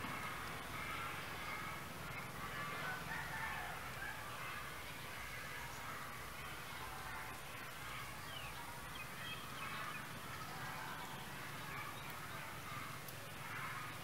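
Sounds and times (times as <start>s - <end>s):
faint outdoor ambience: 0.0s - 14.0s.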